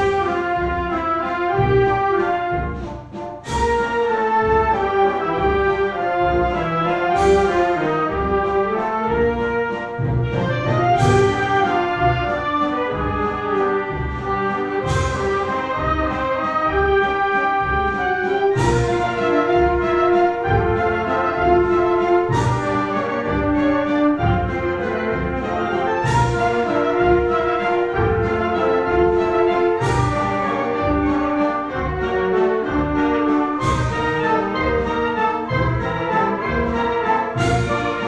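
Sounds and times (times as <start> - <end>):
wind band playing a waltz: 0.0 - 38.0.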